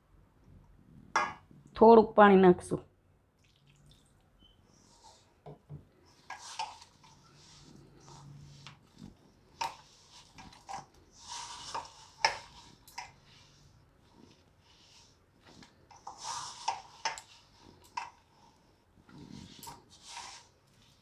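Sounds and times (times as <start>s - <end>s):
dough squishing by hand: 4.8s - 21.0s.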